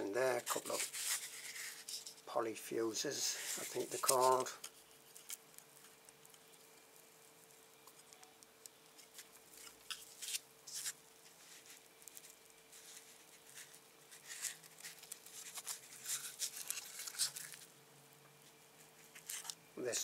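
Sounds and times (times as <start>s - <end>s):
faint steady hum: 0.0s - 20.0s
fingers clicking and rustling: 3.8s - 6.7s, 7.4s - 17.7s.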